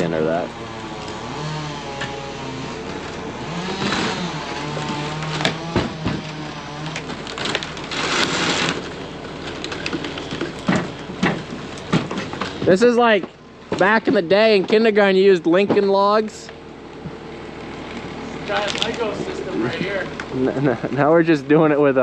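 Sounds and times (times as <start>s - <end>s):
loader engine running: 0.0s - 22.0s
sharp knocks: 4.8s - 7.2s.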